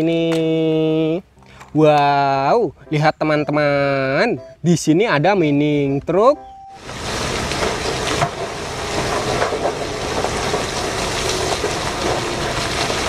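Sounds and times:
rocks sliding and tumbling: 0:06.8 - 0:13.0.

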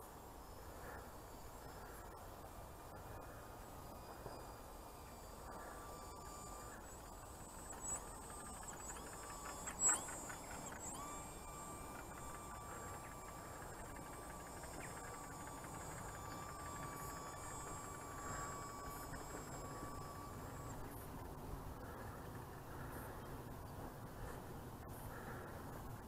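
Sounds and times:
model plane motor whine: 0:00.2 - 0:26.0.

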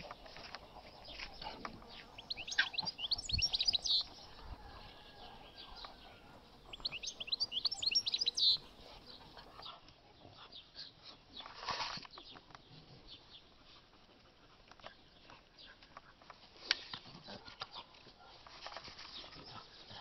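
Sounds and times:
songbird singing: 0:00.0 - 0:09.8.

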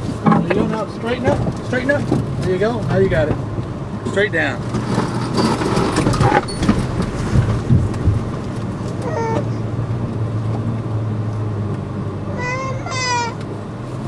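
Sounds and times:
suspension knocking: 0:00.0 - 0:09.5
truck engine at low speed: 0:00.0 - 0:14.0.

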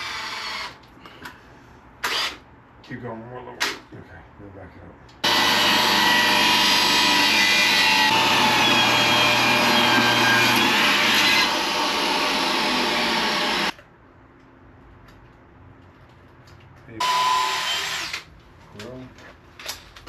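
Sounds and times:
power tool whining: 0:05.2 - 0:13.7, 0:17.0 - 0:18.2.

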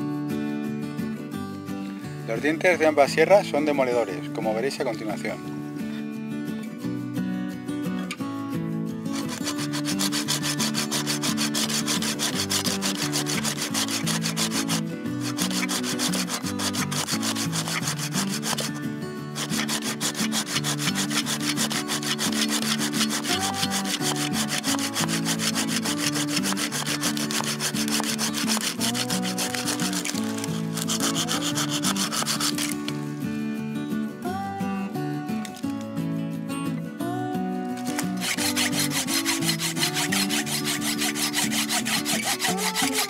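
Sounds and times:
hand saw cutting a branch: 0:09.1 - 0:33.1, 0:37.8 - 0:43.0.

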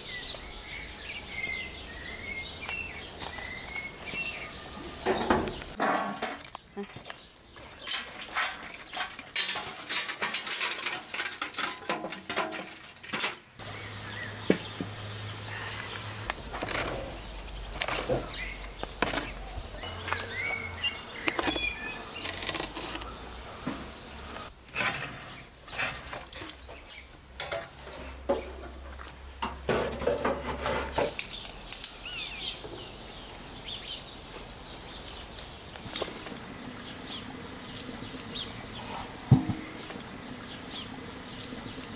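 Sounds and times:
birds chirping: 0:00.0 - 0:09.4, 0:13.6 - 0:29.6, 0:30.6 - 0:41.9
metal pan set down on ash: 0:05.0 - 0:07.0, 0:07.8 - 0:13.4
poker scraping embers on metal: 0:05.0 - 0:13.4, 0:16.2 - 0:26.8, 0:29.7 - 0:31.9, 0:35.8 - 0:40.2.

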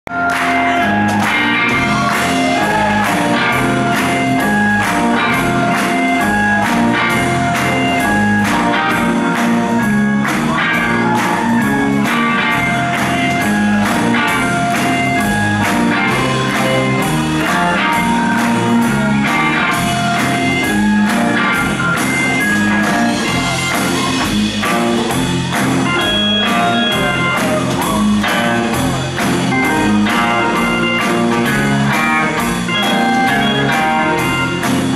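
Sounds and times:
live rock band playing: 0:00.1 - 0:34.9
drum kit steady beat: 0:00.2 - 0:34.9.

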